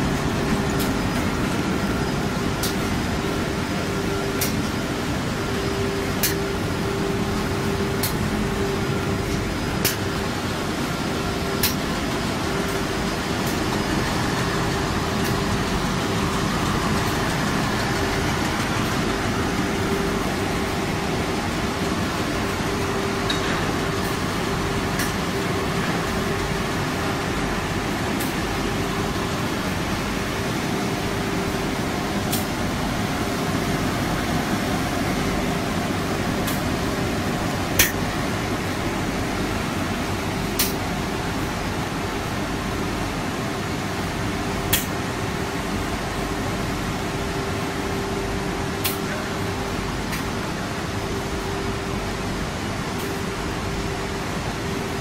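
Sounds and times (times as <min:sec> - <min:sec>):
machinery humming: 0:00.0 - 0:55.0.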